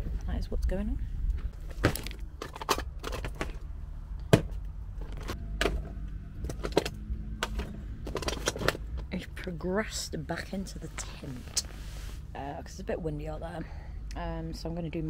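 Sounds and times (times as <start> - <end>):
low steady rumble: 0.0 - 15.0
makeup items clattering: 1.7 - 3.6, 5.0 - 9.1.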